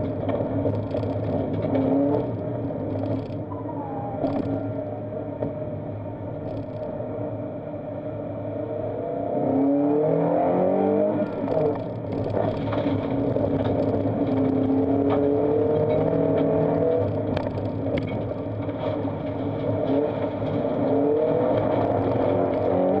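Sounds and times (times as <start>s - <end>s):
gravel ticking against car body: 0.0s - 3.5s, 6.4s - 6.9s, 11.1s - 23.0s
car engine revving: 0.0s - 23.0s.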